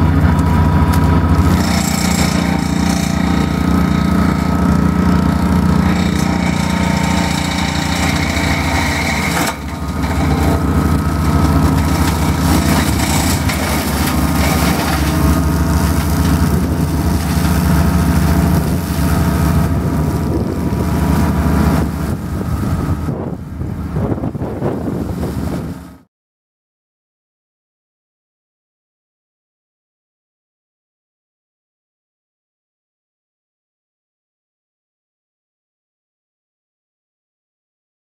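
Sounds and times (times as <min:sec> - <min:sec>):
flail mower cutting reeds: 0:00.0 - 0:26.0
tractor engine running: 0:00.0 - 0:26.0.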